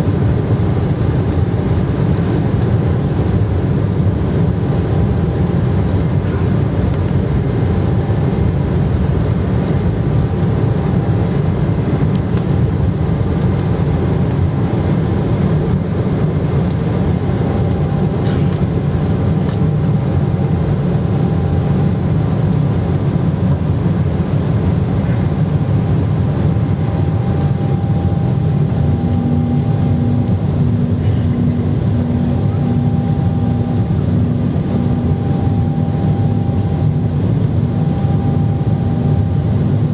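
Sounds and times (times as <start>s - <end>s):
jet engines at takeoff: 0.0s - 39.9s
faint on-off hum: 26.3s - 39.9s.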